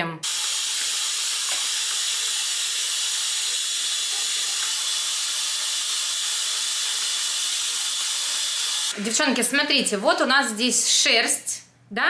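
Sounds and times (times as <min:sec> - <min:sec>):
stick vacuum whirring: 0:00.3 - 0:09.0.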